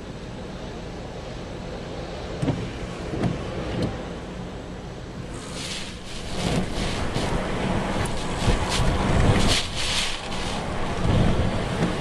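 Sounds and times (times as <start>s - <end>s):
hiss of wind and spray: 0.4s - 12.0s
waves breaking on a seawall: 5.2s - 12.0s
dull thumps of waves: 5.3s - 12.0s.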